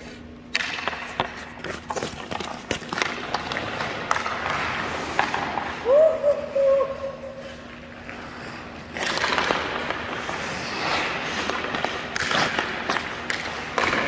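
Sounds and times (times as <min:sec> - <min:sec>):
hockey skates carving on ice: 0:00.0 - 0:14.0
stick clicking on puck: 0:00.5 - 0:05.6, 0:08.9 - 0:14.0.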